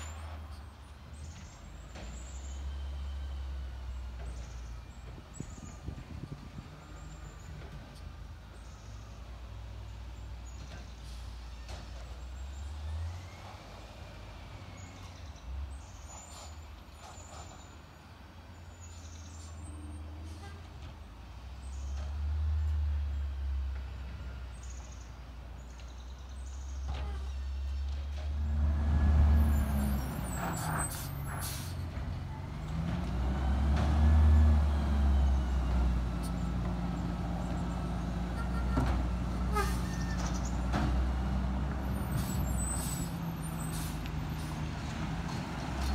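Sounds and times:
truck engine rumbling and revving: 0.0s - 45.9s
air brakes hiss: 42.1s - 44.1s.

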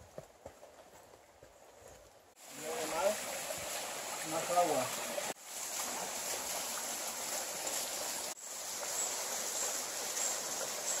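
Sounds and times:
stream water rushing: 2.4s - 11.0s.

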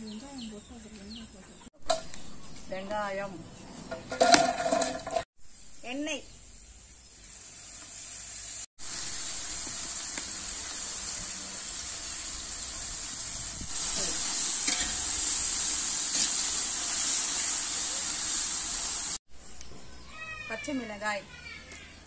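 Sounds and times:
onions sizzling in hot oil: 4.2s - 21.2s
metal ladle stirring in pot: 14.6s - 15.2s.

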